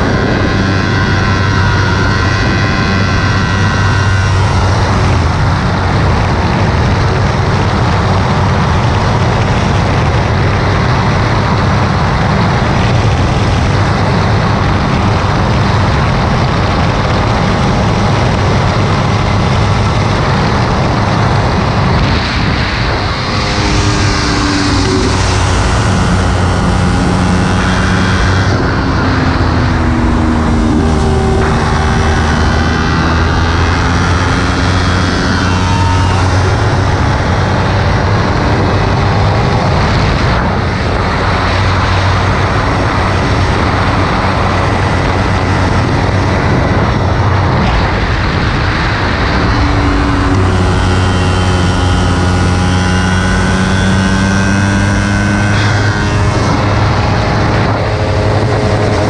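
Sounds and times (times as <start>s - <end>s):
motorcycle engine running hard: 0.0s - 59.0s
wind noise: 0.0s - 59.0s.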